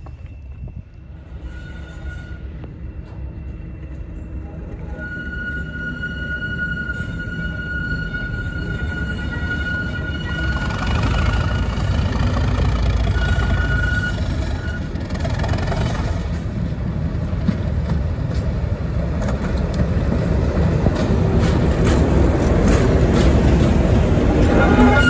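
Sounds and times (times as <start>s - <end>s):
diesel locomotive engine running: 6.8s - 25.0s.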